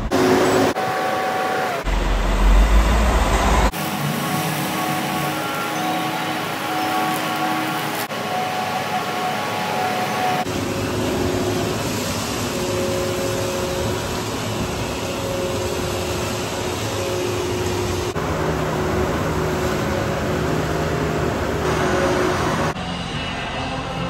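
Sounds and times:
low machine hum: 0:10.4 - 0:24.0.

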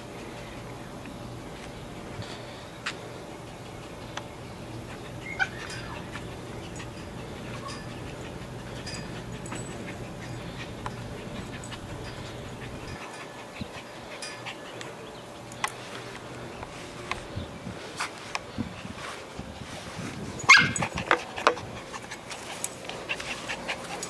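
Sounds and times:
steady low hum: 0:00.0 - 0:24.0
small dog panting: 0:02.3 - 0:17.2, 0:20.6 - 0:24.0
dog whining softly: 0:05.2 - 0:13.0.

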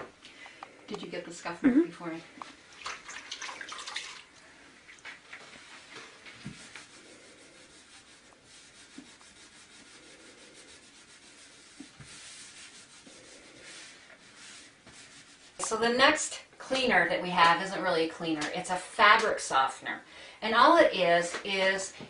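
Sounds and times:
gloved hand scrubbing wet floor: 0:04.9 - 0:15.6.

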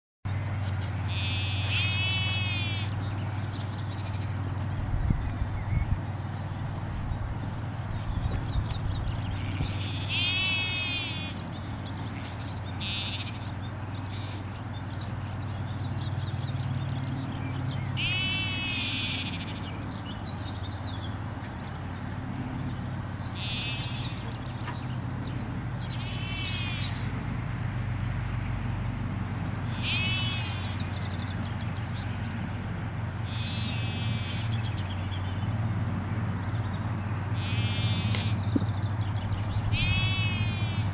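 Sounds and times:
steady low hum: 0:00.3 - 0:40.9
lambs bleating: 0:01.1 - 0:02.9, 0:09.4 - 0:11.4, 0:12.1 - 0:13.4, 0:18.0 - 0:19.6, 0:23.4 - 0:24.3, 0:26.0 - 0:27.0, 0:29.7 - 0:30.8, 0:33.2 - 0:34.6, 0:37.4 - 0:38.7, 0:39.7 - 0:40.9.

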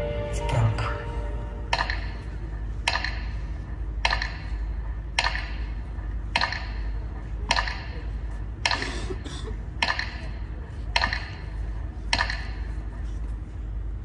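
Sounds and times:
low steady rumble: 0:00.0 - 0:14.0
metronome ticking: 0:01.7 - 0:02.2, 0:02.8 - 0:03.4.

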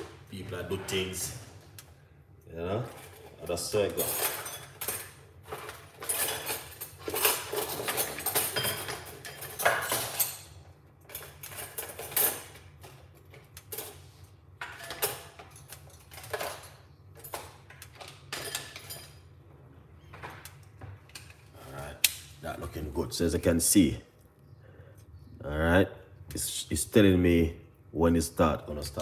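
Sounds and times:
dishes and utensils clinking: 0:02.9 - 0:13.0, 0:13.6 - 0:19.3.

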